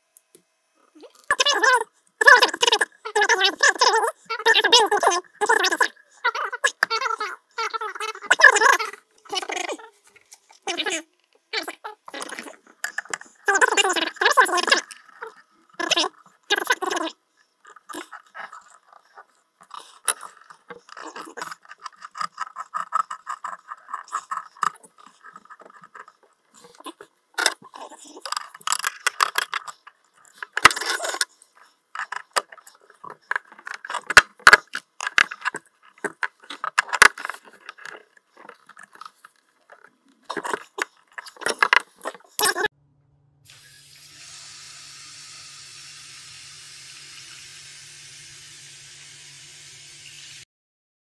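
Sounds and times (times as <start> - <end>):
faint low hum: 42.8 - 43.6
steady water hiss: 43.5 - 50.4.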